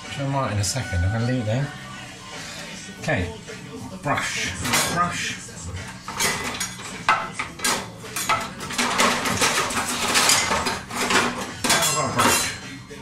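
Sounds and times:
cutlery clattering in drawer: 0:04.5 - 0:05.2, 0:06.0 - 0:12.8.

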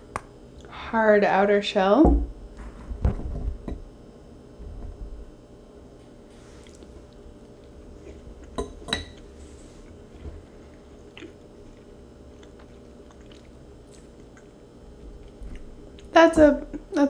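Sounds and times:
person chewing: 0:06.5 - 0:16.1
fork clinking on ceramic bowl: 0:08.6 - 0:09.2.

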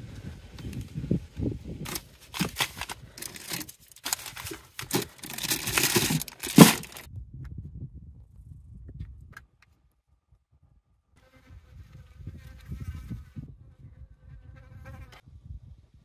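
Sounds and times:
plastic bags crinkling: 0:01.9 - 0:07.1.

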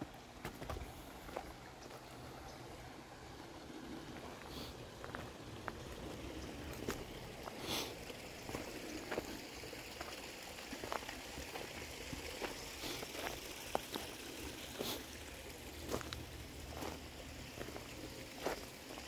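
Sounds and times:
steady outdoor hiss: 0:00.0 - 0:19.0
footsteps crunching on leaves: 0:10.8 - 0:15.0, 0:15.8 - 0:18.7.

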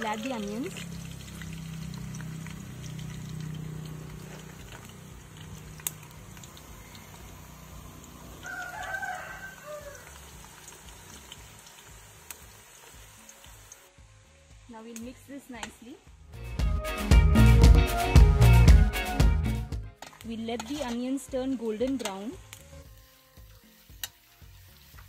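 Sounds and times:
faint rooster crowing: 0:08.2 - 0:10.4.

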